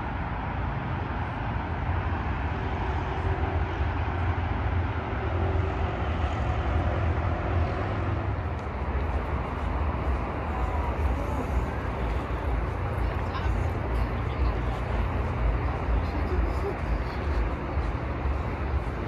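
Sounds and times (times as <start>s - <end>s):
faint steady engine hum: 0.0s - 19.0s
passing vehicles rumbling: 0.0s - 19.0s.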